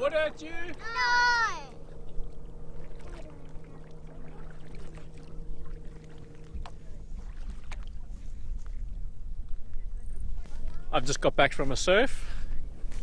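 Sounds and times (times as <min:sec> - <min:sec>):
steady low hum: 0:00.0 - 0:13.0
kayak paddles splashing in water: 0:00.7 - 0:09.0
wind rumble on microphone: 0:01.7 - 0:13.0.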